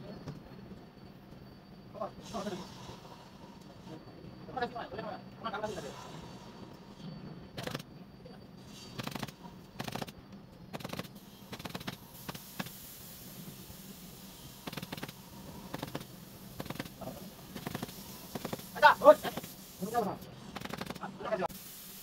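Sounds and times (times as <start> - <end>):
pneumatic staple gun firing: 9.0 - 10.1, 10.8 - 12.8, 14.6 - 16.9, 17.6 - 18.7, 20.5 - 21.0.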